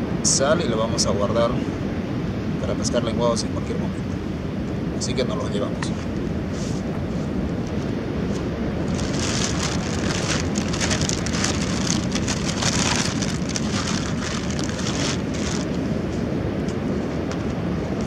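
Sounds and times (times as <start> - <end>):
wind rumble on microphone: 0.0 - 18.0
plastic bag crinkling: 8.9 - 15.8.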